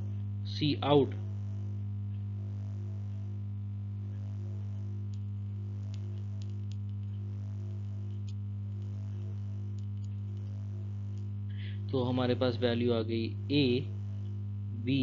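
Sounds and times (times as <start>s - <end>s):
electrical mains hum: 0.0s - 15.0s
faint clicks: 5.1s - 11.3s.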